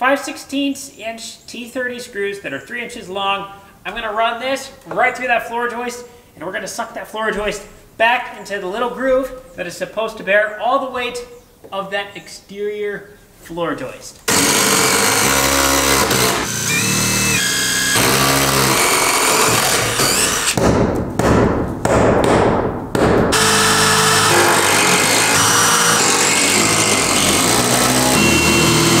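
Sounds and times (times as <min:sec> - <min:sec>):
cordless drill driving screws: 0:14.3 - 0:20.6, 0:23.4 - 0:29.0.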